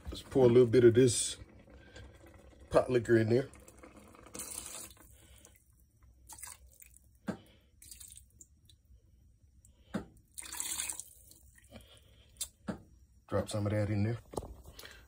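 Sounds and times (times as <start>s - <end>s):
broth pouring and splashing: 3.4s - 5.6s, 6.2s - 7.1s, 7.8s - 8.5s, 10.3s - 11.6s.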